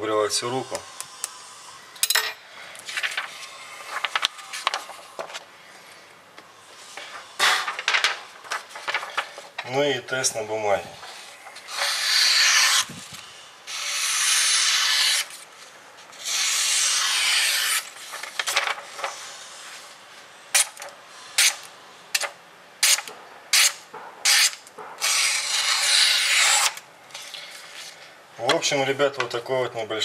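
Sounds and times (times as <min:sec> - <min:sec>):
knife slicing paper: 0:11.7 - 0:13.0, 0:13.7 - 0:15.5, 0:16.2 - 0:19.3, 0:23.6 - 0:27.3.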